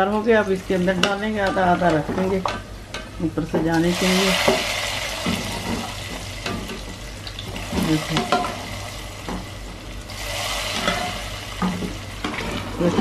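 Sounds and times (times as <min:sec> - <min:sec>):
onions frying in hot oil: 0:00.0 - 0:13.0.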